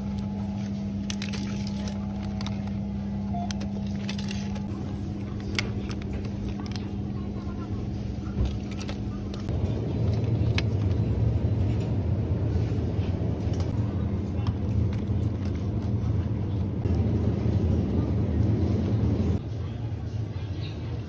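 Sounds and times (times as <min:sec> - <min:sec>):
refrigerated display cases humming: 0:00.0 - 0:21.0.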